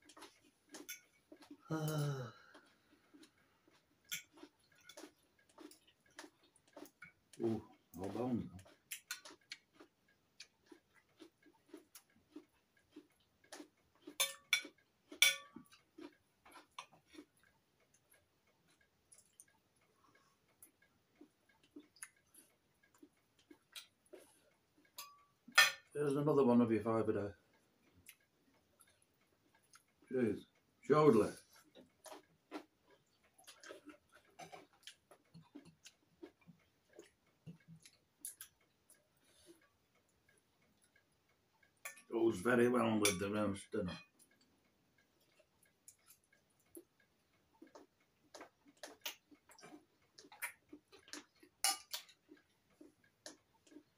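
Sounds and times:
chewing and mouth noises: 0:00.0 - 0:26.0, 0:27.3 - 0:42.9, 0:43.6 - 0:53.9
cutlery clinks: 0:14.2 - 0:15.6.

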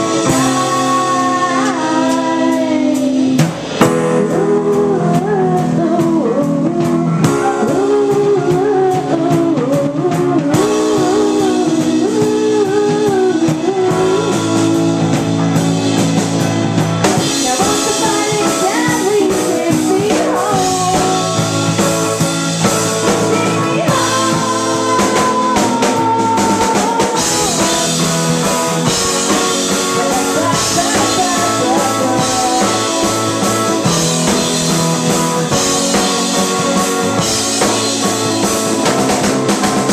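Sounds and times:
woman singing: 0:00.0 - 0:15.3, 0:17.2 - 0:21.9, 0:23.0 - 0:37.8
bass guitar: 0:00.0 - 0:39.9
drum kit: 0:00.0 - 0:39.9
electric guitar: 0:00.0 - 0:39.9
keyboards: 0:00.0 - 0:39.9.

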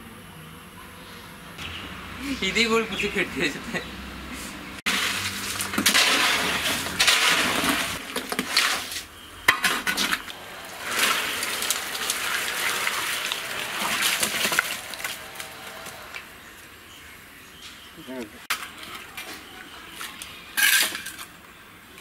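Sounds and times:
masonry tools scraping mortar: 0:04.9 - 0:16.3.

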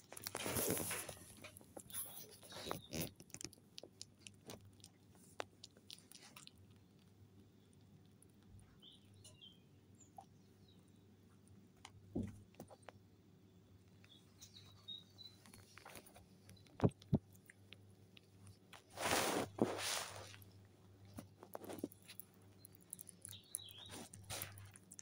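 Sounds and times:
fur rustling on microphone: 0:18.9 - 0:20.4.

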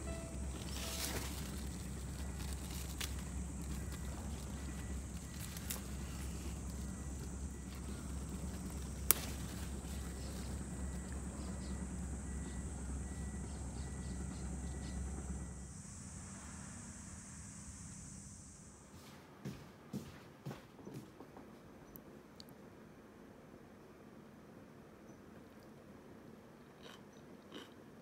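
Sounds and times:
thin high hiss: 0:00.0 - 0:06.7, 0:14.2 - 0:19.3
low rumble: 0:00.0 - 0:18.8
hands clicking among leaves: 0:00.1 - 0:11.2
stem snapping: 0:00.6 - 0:04.5, 0:05.2 - 0:06.5, 0:08.6 - 0:10.0.

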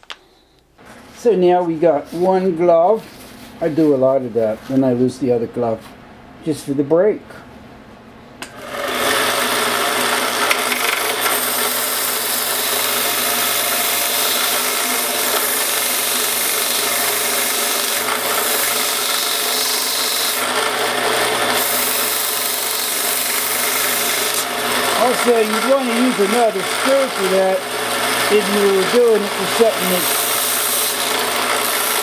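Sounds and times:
power tool sanding metal: 0:08.6 - 0:32.0.

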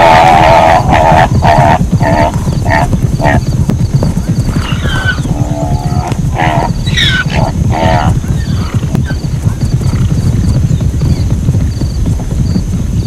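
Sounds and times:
zebra barking and braying: 0:00.0 - 0:03.4, 0:04.6 - 0:09.2
steady low rumble: 0:00.3 - 0:13.0.

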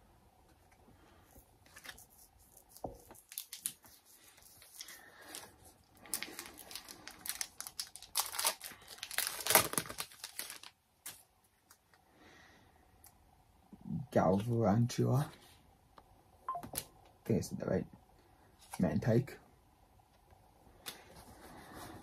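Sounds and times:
foil wrapper crinkling and tearing: 0:03.1 - 0:11.3.

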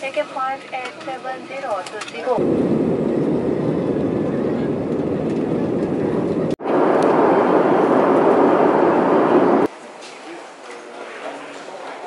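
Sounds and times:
jet cabin engine rush: 0:02.4 - 0:09.7.

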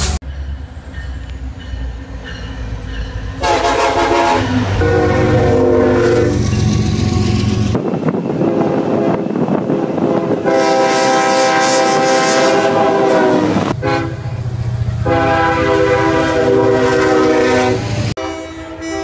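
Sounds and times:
diesel locomotive engine rumble: 0:00.0 - 0:19.0
train air horn chords: 0:03.4 - 0:07.4, 0:08.4 - 0:14.4, 0:15.0 - 0:19.0.

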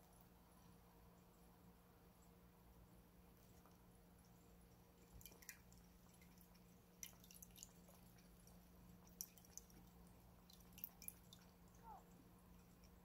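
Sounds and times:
cat eating and lapping: 0:03.1 - 0:13.0.

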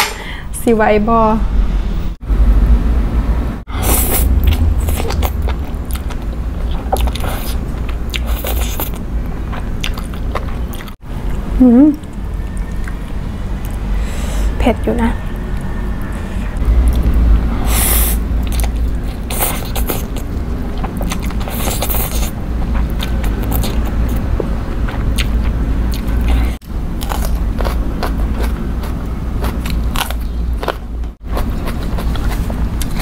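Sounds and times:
steady low hum: 0:00.0 - 0:33.0
wet chewing: 0:03.8 - 0:11.4, 0:18.1 - 0:33.0.

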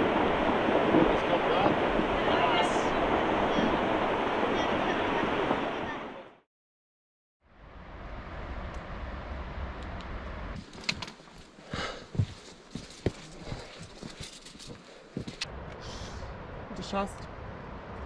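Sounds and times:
footsteps crunching on loose rock: 0:10.6 - 0:15.4.

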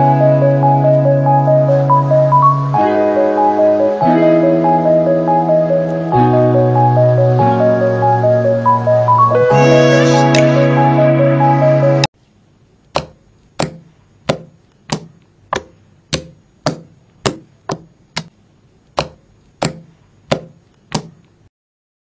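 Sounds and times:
background music: 0:00.0 - 0:12.1
slime popping when poked: 0:18.9 - 0:21.2.

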